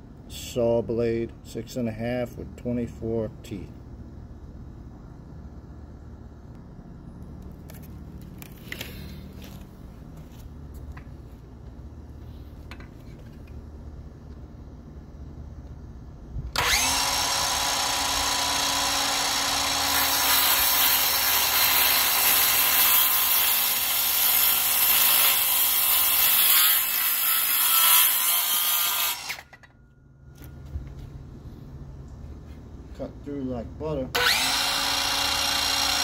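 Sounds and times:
circular saw cutting wood: 16.6 - 29.7, 34.1 - 36.0.

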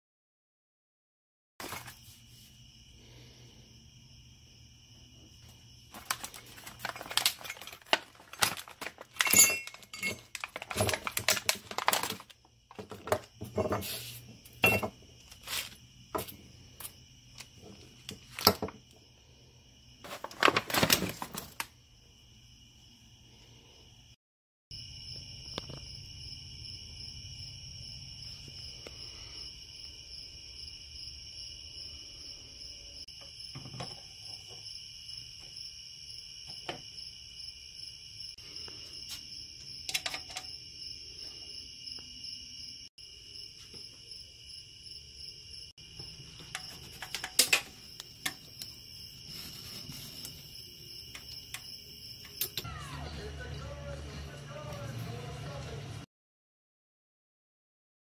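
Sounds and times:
crickets chirring: 1.6 - 55.6
metal parts clattering on wood: 5.9 - 16.3.

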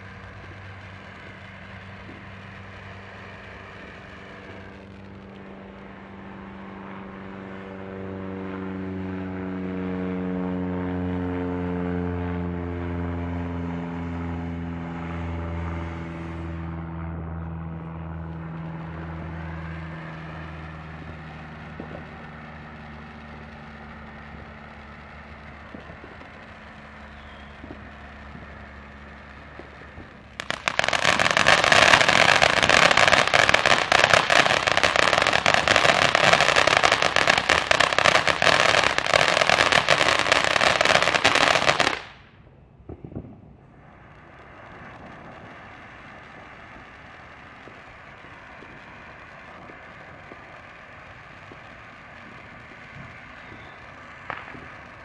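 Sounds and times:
fountain firework crackling hiss: 0.0 - 9.2, 13.6 - 42.3, 43.1 - 55.0.

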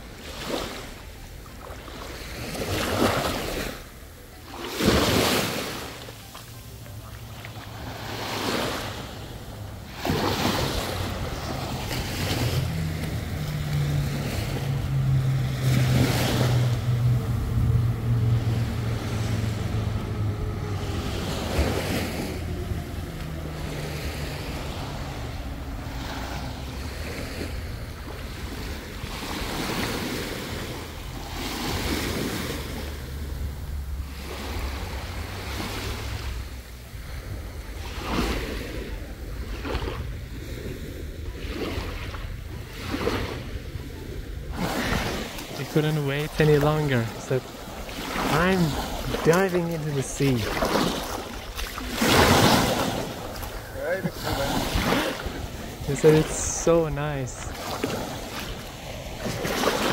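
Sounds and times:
sea waves washing in: 0.0 - 59.9
low steady hum: 10.6 - 25.9.

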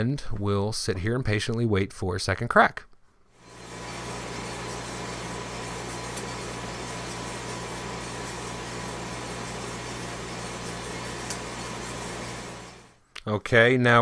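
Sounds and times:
coffee roaster humming: 3.4 - 13.0.

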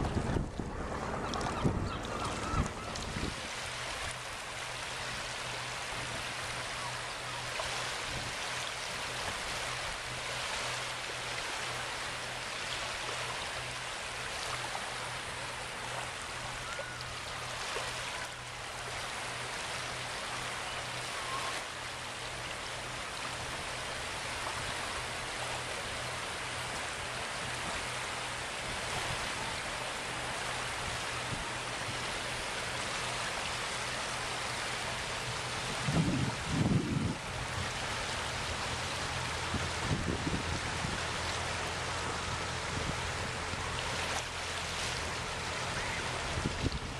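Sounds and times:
low hum: 0.0 - 4.4
water lapping at shore: 0.0 - 46.9.

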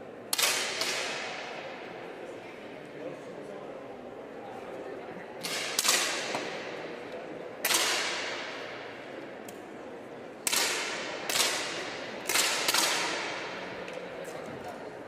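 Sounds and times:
hall echo: 0.0 - 4.1, 5.0 - 15.0
air pistol shots: 0.3 - 1.5, 5.4 - 6.8, 7.6 - 8.9, 10.4 - 13.6.

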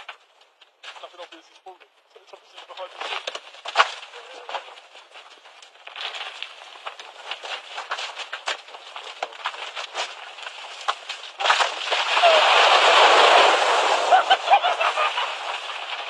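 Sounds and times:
stones clattering down cliff: 2.7 - 16.0
hiss: 12.0 - 16.0.

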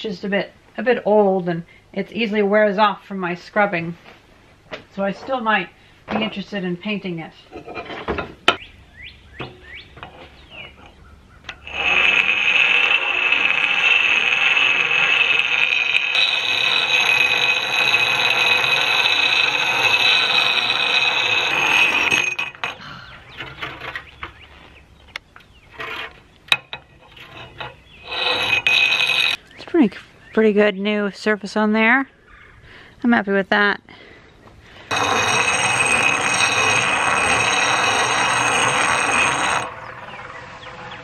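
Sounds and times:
axe grinding on stone wheel: 11.5 - 24.4, 25.7 - 29.4, 34.9 - 41.0.

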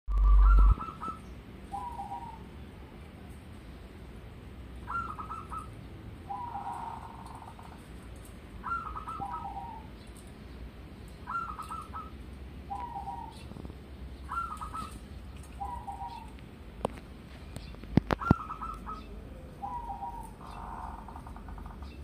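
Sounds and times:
dove cooing: 0.1 - 3.0, 4.8 - 8.0, 8.6 - 10.3, 11.2 - 16.4, 18.0 - 22.0.

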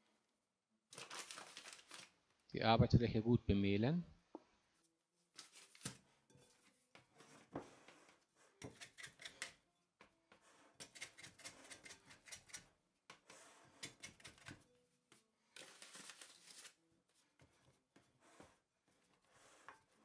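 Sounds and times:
dough scraper scraping glass bowl: 7.1 - 9.6, 10.3 - 14.6.

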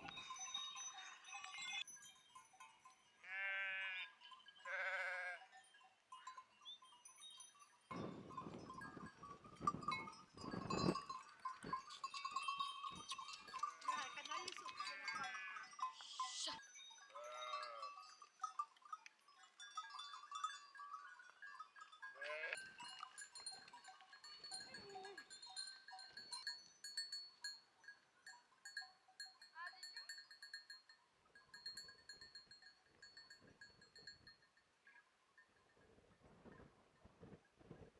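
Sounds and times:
sheep and goats bleating: 3.2 - 5.6, 11.6 - 18.2, 20.0 - 26.4.

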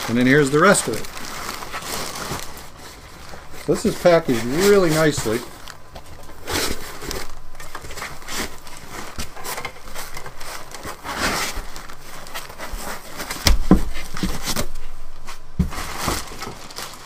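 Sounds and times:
foam packing rubbing: 0.0 - 17.0
plastic bag crinkling: 0.0 - 17.0
heavy thumps: 13.3 - 16.6.

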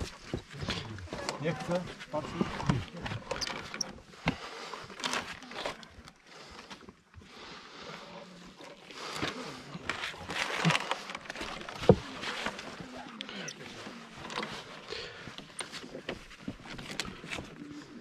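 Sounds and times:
heavy breathing: 3.9 - 11.6, 13.2 - 18.0
clothing rustling: 9.0 - 18.0.

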